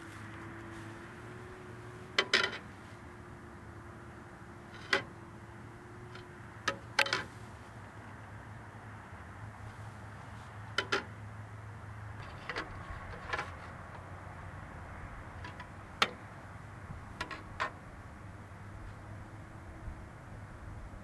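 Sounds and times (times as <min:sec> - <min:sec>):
metal clanks and taps: 0:02.2 - 0:02.7, 0:10.7 - 0:11.1.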